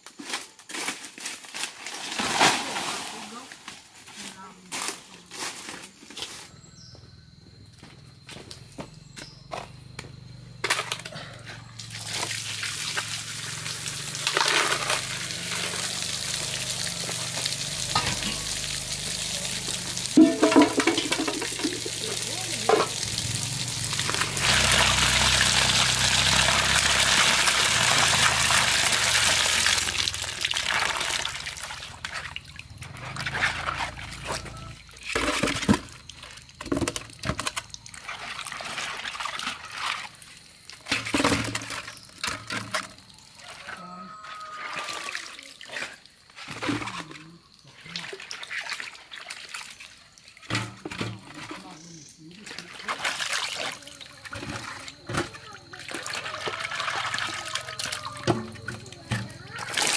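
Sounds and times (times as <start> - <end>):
water splashes and knocks: 11.7 - 43.8, 44.6 - 59.9
water pouring: 11.7 - 59.9.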